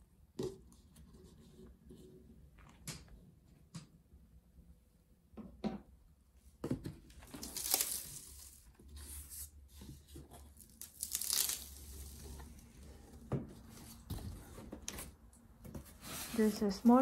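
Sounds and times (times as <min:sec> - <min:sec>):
cardboard ripping: 0:07.2 - 0:08.7, 0:10.6 - 0:12.4
cardboard sliding and scraping: 0:15.7 - 0:17.0.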